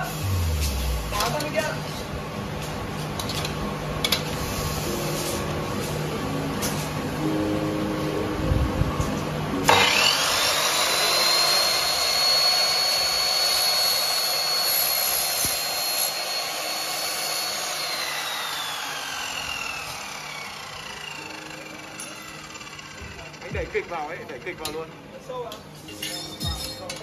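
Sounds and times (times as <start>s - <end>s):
saw cutting aluminium: 9.6s - 25.0s
mitre saw whining: 9.6s - 25.1s.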